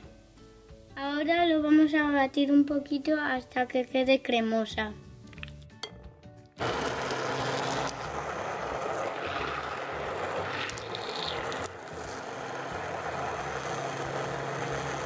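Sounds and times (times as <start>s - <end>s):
stick blender motor whirring: 6.6s - 15.0s.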